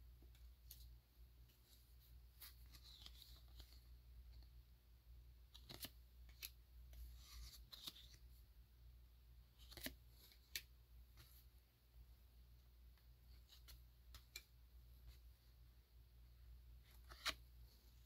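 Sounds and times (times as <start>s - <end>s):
photo cards sliding and clicking: 2.4s - 3.8s, 5.5s - 8.2s, 9.6s - 11.3s, 16.9s - 17.5s.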